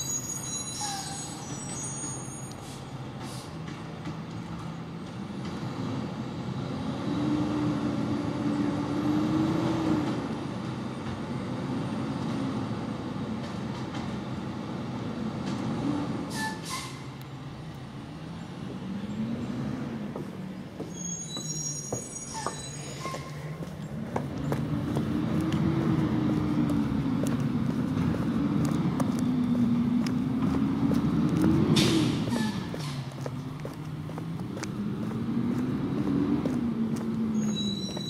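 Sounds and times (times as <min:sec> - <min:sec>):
garbage truck diesel engine revving: 0:24.0 - 0:37.6.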